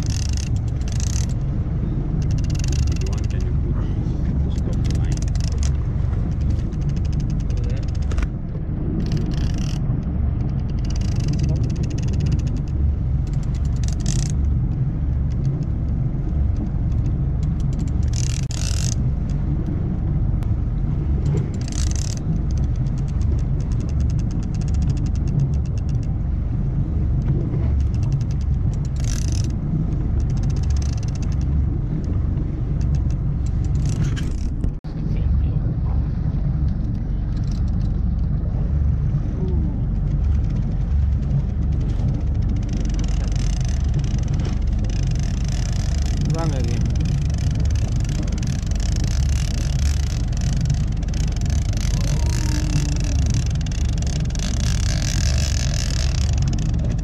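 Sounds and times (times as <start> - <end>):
fishing reel whirring: 0.0 - 3.4, 9.0 - 14.5, 16.5 - 19.0, 21.5 - 26.1, 27.8 - 31.7, 41.6 - 57.0
boat engine rumble: 0.0 - 57.0.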